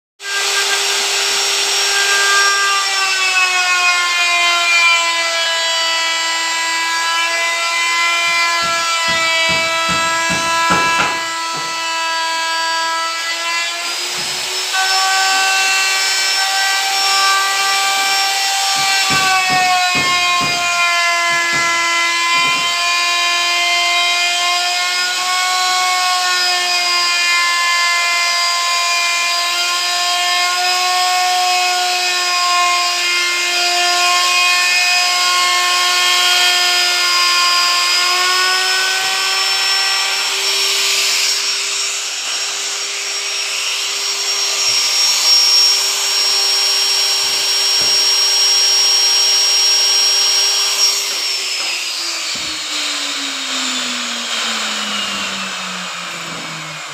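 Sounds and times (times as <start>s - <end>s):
electric router cutting wood: 0.2s - 56.9s.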